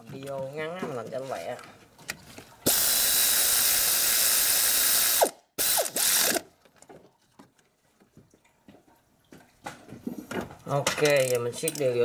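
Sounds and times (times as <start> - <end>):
power ratchet hissing: 2.7 - 6.4.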